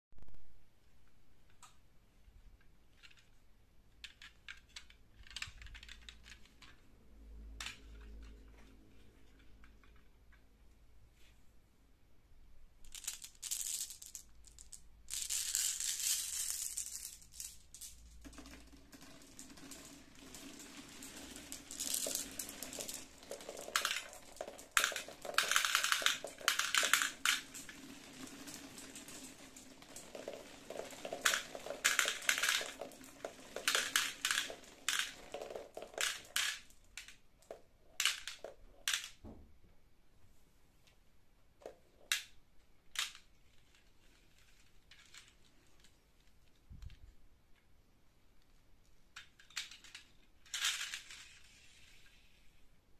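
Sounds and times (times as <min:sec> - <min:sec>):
marbles clicking and clattering: 0:04.0 - 0:06.9, 0:07.6 - 0:10.4, 0:12.8 - 0:39.2, 0:41.6 - 0:47.0, 0:49.1 - 0:52.5
marbles rolling on cardboard track: 0:04.0 - 0:06.9, 0:07.6 - 0:10.4, 0:12.8 - 0:39.2, 0:41.6 - 0:47.0, 0:49.1 - 0:52.6.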